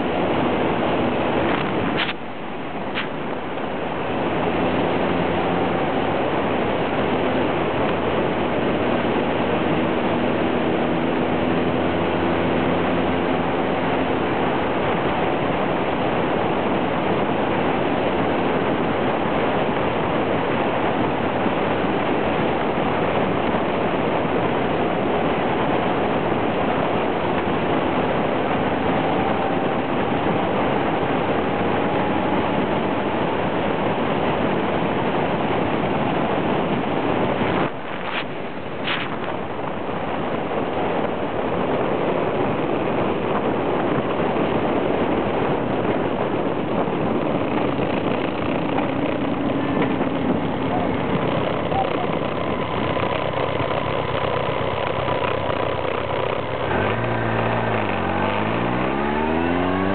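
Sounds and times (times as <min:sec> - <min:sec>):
motorcycle engine running: 0:00.0 - 0:59.9
wind rushing: 0:35.4 - 0:59.9.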